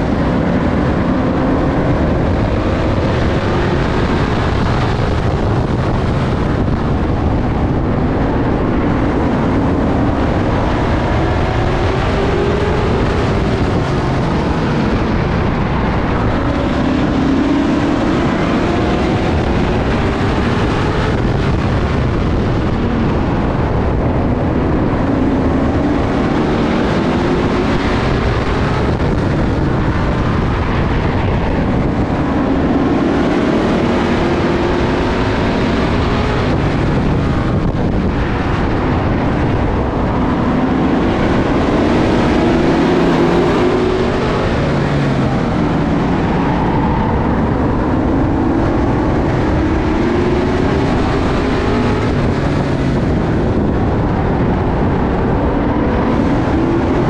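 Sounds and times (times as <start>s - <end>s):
race car engine accelerating: 0.0s - 57.0s.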